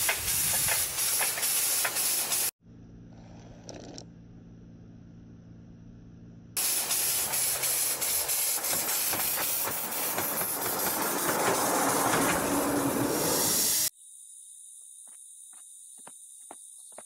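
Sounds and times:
steam locomotive hiss and chuffs: 0.0 - 2.6, 6.6 - 13.9.

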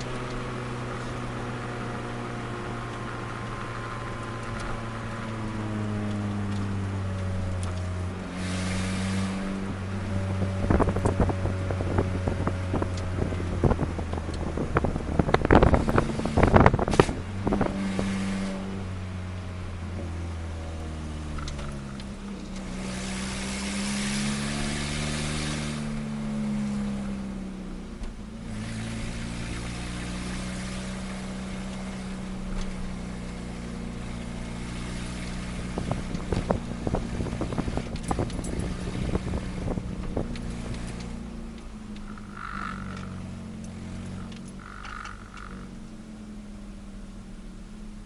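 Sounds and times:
car engine running at low revs: 0.0 - 48.0
hiss of escaping exhaust: 8.3 - 9.6.

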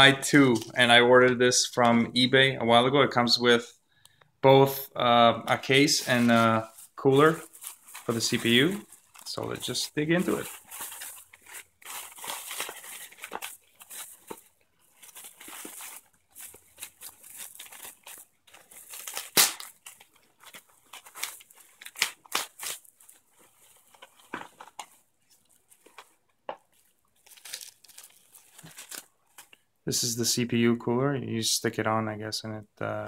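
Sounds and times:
bubble wrap crinkling: 5.7 - 29.7.

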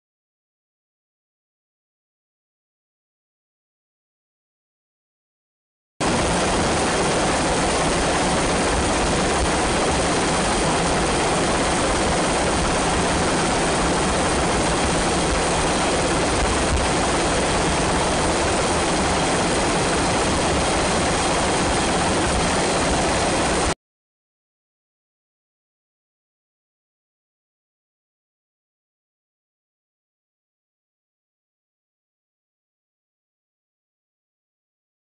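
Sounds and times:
aircraft noise: 6.0 - 23.8.

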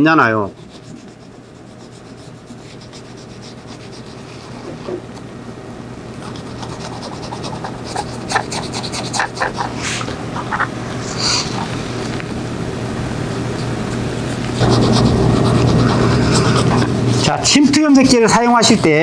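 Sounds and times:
paintbrush scratching on leather: 0.5 - 4.3.

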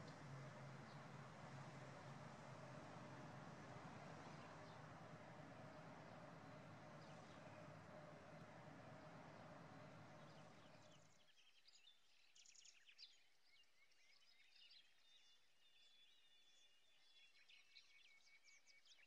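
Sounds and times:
small birds chirping: 0.0 - 11.0
faint outdoor hiss: 0.0 - 11.1.

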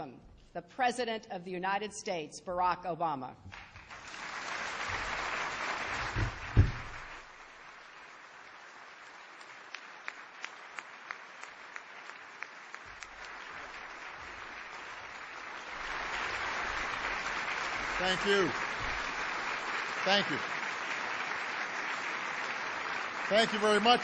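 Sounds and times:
audience applauding: 3.5 - 24.0
low thump: 6.0 - 7.1.

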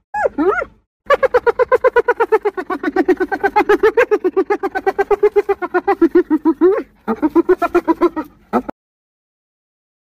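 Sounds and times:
hyena giggling: 1.1 - 8.7.

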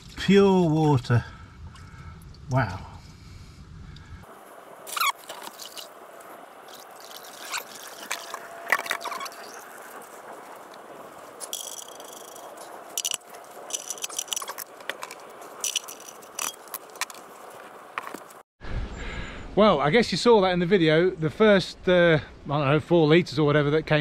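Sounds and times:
metallic clinks and scrapes: 11.4 - 17.3.

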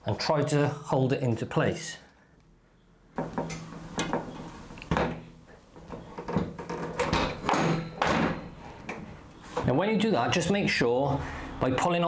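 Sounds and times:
metal brackets knocking: 3.2 - 9.1.

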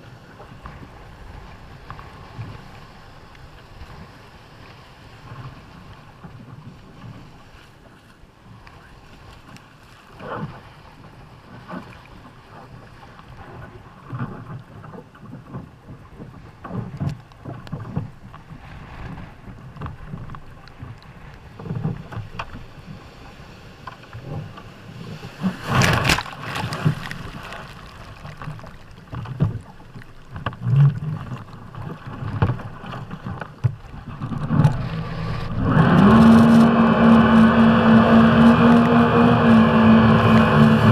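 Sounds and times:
waves slapping a hull: 0.0 - 40.9
wind on microphone: 30.4 - 40.9
jet ski engine revving: 34.1 - 40.9.

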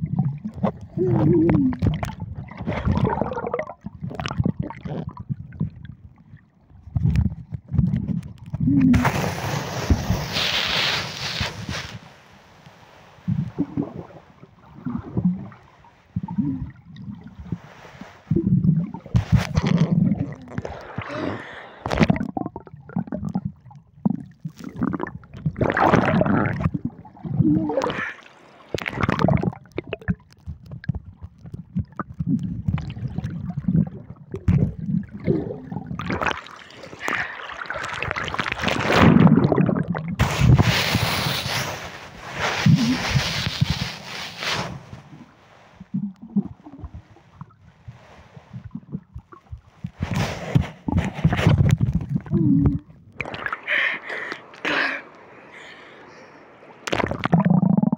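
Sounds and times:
muffled underwater water gurgling: 0.0 - 12.4, 13.2 - 57.9
water splashing: 8.8 - 12.2, 24.4 - 56.0, 56.7 - 57.8.

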